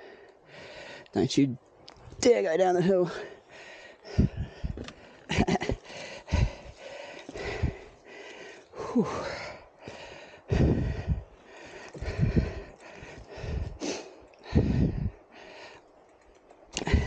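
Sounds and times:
man gasping for breath: 3.1 - 15.9, 16.8 - 17.0.

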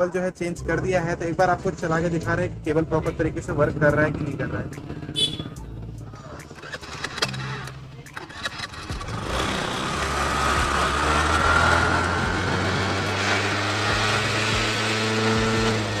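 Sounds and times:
scooter engine revving: 4.1 - 16.0
engine whine: 4.2 - 16.0.

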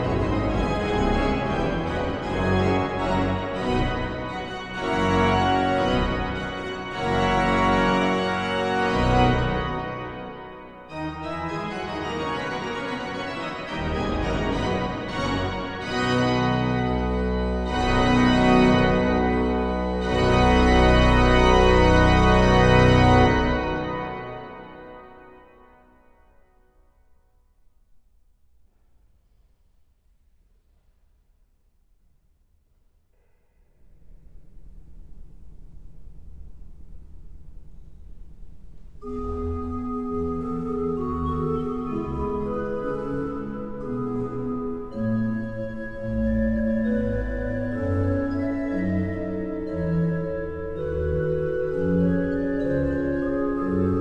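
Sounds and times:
pipe organ playing chords: 0.0 - 25.8, 39.0 - 54.0.

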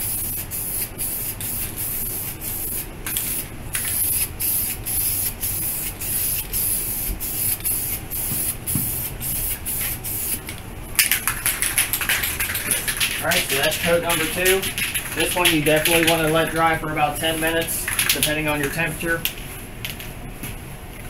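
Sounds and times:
spray paint hissing: 0.0 - 16.5.

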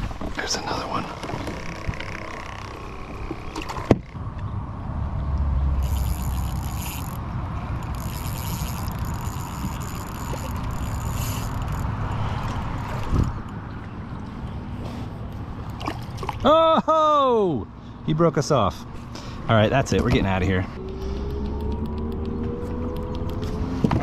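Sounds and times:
water and kayak hull noise: 0.0 - 4.2, 5.8 - 16.5.

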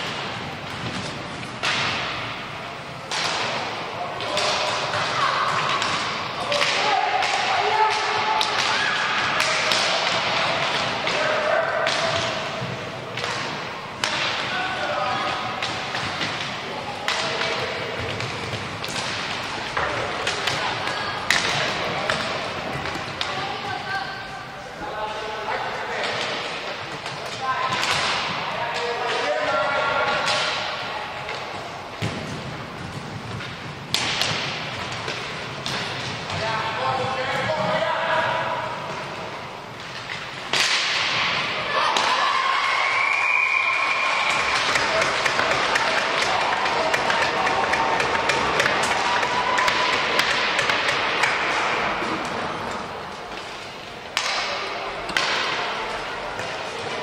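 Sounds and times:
stick and puck clacks: 0.0 - 24.0, 25.9 - 37.9, 38.9 - 42.3, 43.8 - 57.0
echoing hall noise: 0.0 - 57.0
hockey stick clacking on puck: 44.2 - 57.0.

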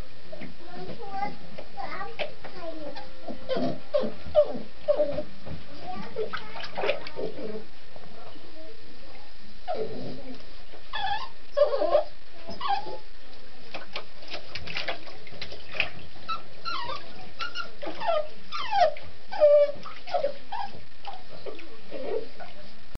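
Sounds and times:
dog whimpering and yipping: 3.5 - 5.2, 10.9 - 13.0, 16.3 - 21.2.

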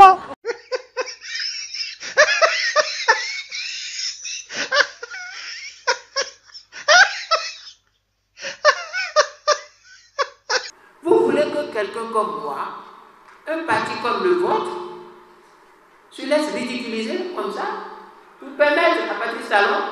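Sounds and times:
hearty laughter: 0.4 - 10.7.

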